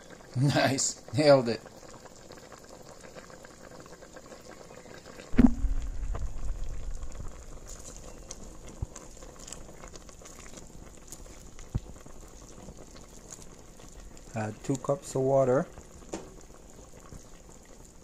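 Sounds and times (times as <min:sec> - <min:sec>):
soup bubbling in a pot: 0:00.0 - 0:18.0
loud thump: 0:05.4 - 0:06.5
low rumble: 0:05.4 - 0:07.6.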